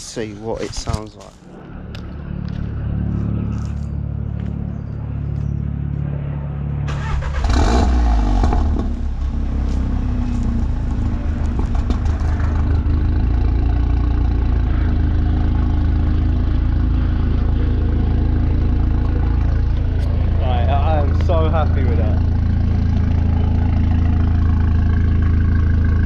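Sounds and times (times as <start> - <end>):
low hum: 0.0 - 26.0
car engine starting and idling: 6.7 - 26.0.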